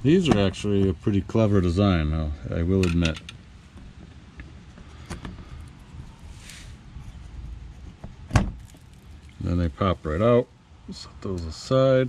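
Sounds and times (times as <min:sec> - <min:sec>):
quiet handling noises: 0:02.6 - 0:10.3.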